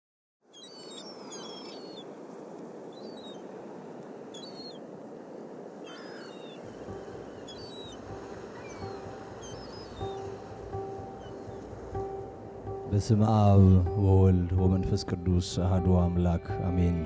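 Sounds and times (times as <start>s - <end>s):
birds chirping: 0.4s - 2.2s, 2.8s - 3.5s, 4.2s - 17.0s
outdoor background hiss: 0.4s - 16.6s
held musical note: 6.6s - 17.0s.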